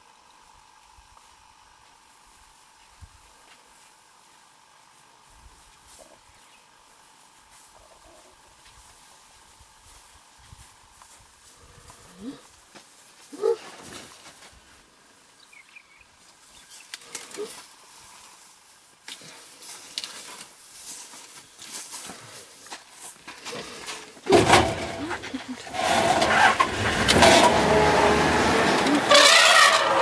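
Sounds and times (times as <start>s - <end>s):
vehicle engine starting and running: 24.3s - 30.0s.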